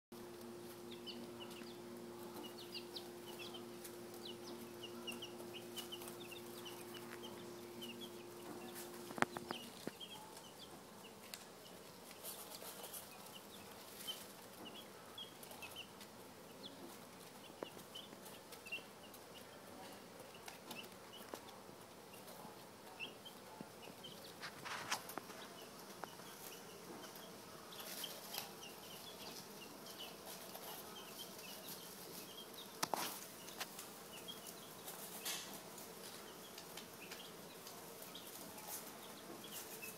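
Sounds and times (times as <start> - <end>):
rustling in wood shavings: 0.2 - 10.4, 11.2 - 14.6, 24.2 - 39.9
steady low hum: 0.2 - 21.0
chicks peeping: 0.2 - 39.9.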